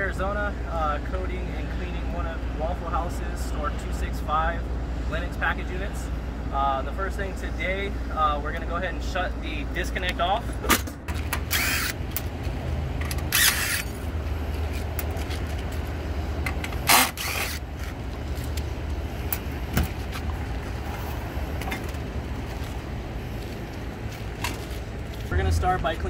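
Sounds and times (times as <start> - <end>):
steady low rumble: 0.0 - 26.0
cordless drill spinning: 11.4 - 12.0, 13.2 - 14.0, 16.8 - 17.7.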